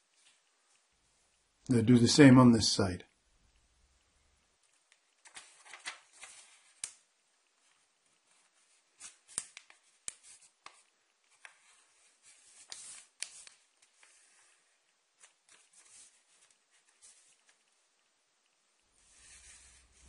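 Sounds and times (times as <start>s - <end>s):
paper rustling and crackling: 5.2s - 7.0s, 7.6s - 17.7s.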